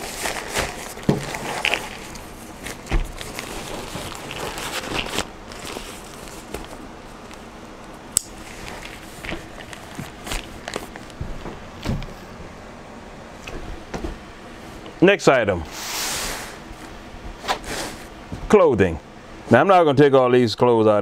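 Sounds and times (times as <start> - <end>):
fabric bag rustling: 0.0 - 7.3, 8.4 - 11.4.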